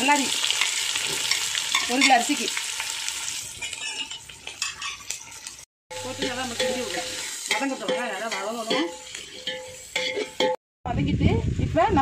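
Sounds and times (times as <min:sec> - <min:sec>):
onions sizzling in oil: 0:00.0 - 0:10.6
metal ladle scraping a pot: 0:03.3 - 0:10.6.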